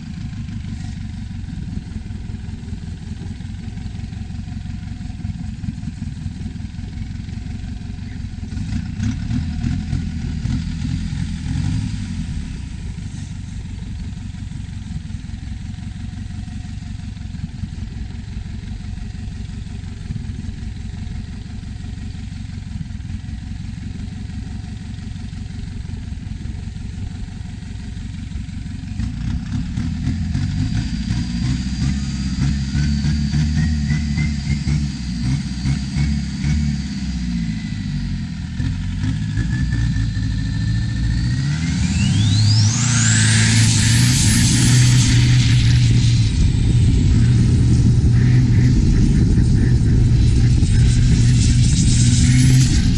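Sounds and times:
boat diesel engine chugging: 0:00.0 - 0:10.8, 0:44.6 - 0:51.9
turbo whine rising in pitch: 0:29.4 - 0:52.9.

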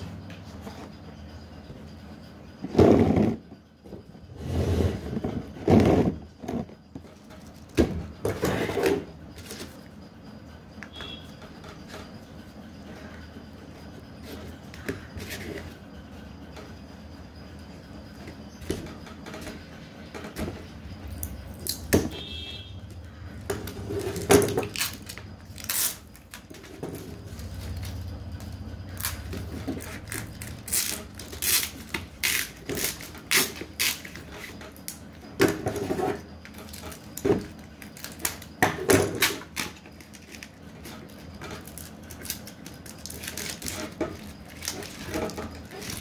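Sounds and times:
steady low hum: 0:00.0 - 0:46.0.

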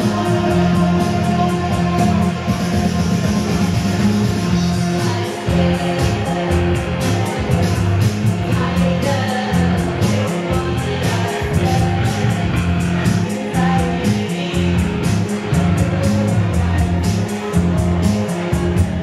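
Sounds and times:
woman singing: 0:00.0 - 0:03.0, 0:04.5 - 0:19.0
keyboard playing: 0:00.0 - 0:19.0
pulsing bass line: 0:00.0 - 0:19.0
rock band playing: 0:00.0 - 0:19.0.

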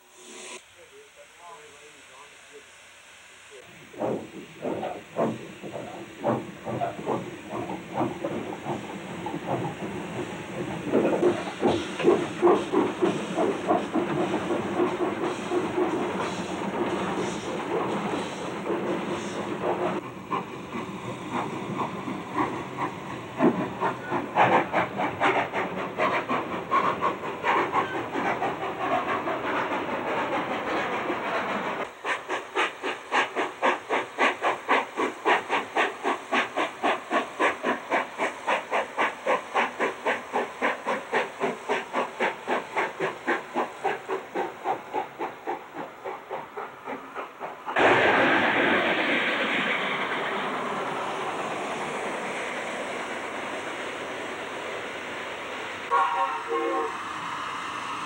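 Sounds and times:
steam hissing: 0:00.0 - 0:58.0
steam locomotive exhaust chuffs: 0:00.0 - 0:58.0.

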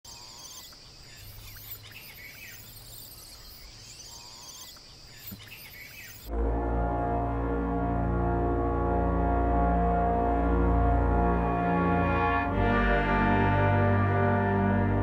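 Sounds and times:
bird chirps and trills: 0:00.0 - 0:06.3
high insect drone: 0:00.1 - 0:06.3
slow music with held notes: 0:06.3 - 0:15.0.

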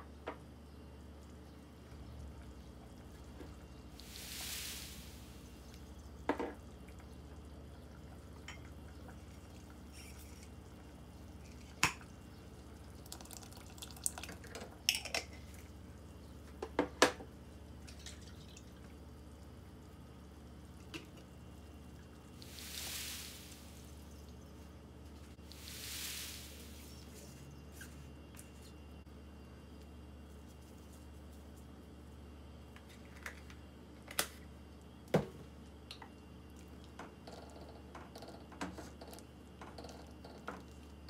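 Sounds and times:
low steady hum: 0:00.0 - 0:41.0
liquid pouring into pot: 0:07.4 - 0:15.2.

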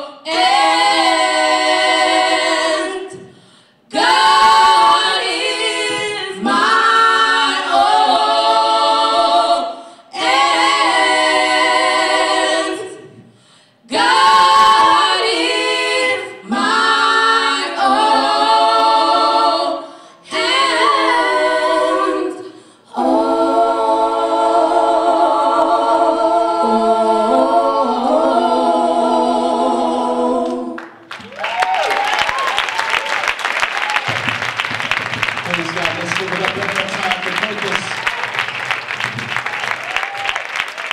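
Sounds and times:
women singing a cappella harmony: 0:00.0 - 0:31.0.

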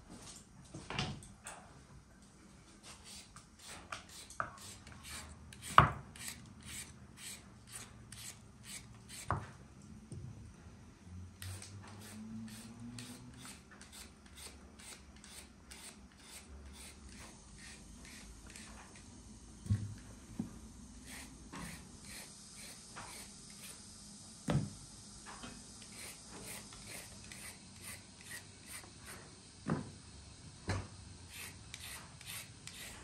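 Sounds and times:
peeler scraping potato skin: 0:03.1 - 0:09.3, 0:31.3 - 0:33.0.

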